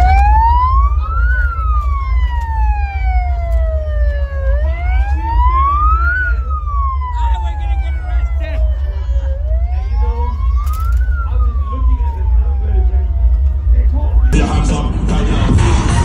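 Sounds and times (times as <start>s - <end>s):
emergency vehicle siren wailing: 0.0s - 14.4s
deep rumble: 0.0s - 16.0s.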